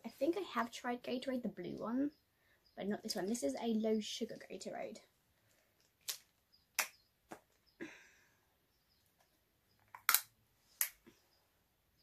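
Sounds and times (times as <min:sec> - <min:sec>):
plastic bottle cap clicks: 0:09.9 - 0:11.0.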